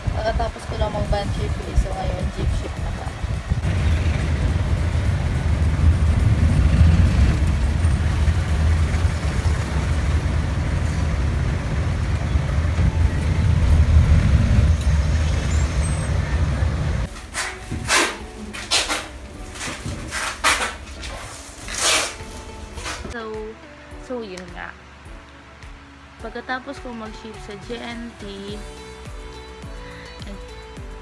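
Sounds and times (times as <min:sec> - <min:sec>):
vehicle engine rumble: 0:00.0 - 0:17.2
road noise: 0:00.0 - 0:30.8
rustling: 0:17.0 - 0:23.2.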